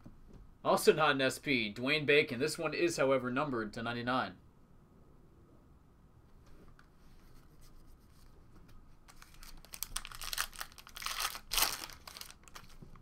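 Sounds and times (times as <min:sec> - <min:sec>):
trading cards shuffling: 0:06.5 - 0:13.0
foil wrapper crinkling: 0:09.1 - 0:13.0.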